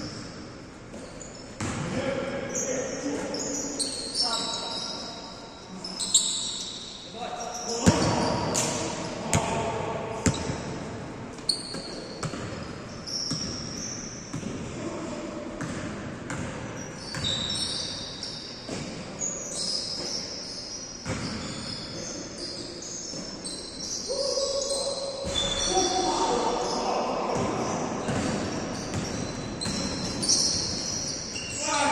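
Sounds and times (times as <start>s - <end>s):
sneakers squeaking: 0.0s - 31.9s
basketball bouncing on court: 0.9s - 1.9s, 7.8s - 9.6s, 10.2s - 10.8s, 11.4s - 14.8s, 15.6s - 17.7s, 21.0s - 21.5s, 27.4s - 31.0s.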